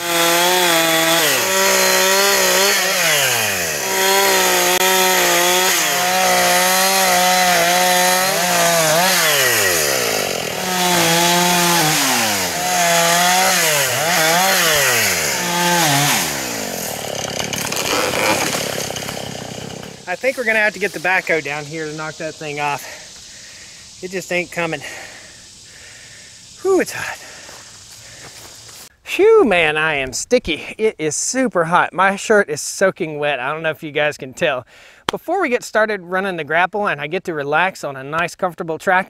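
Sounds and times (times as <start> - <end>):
chainsaw cutting wood: 0.0 - 23.4.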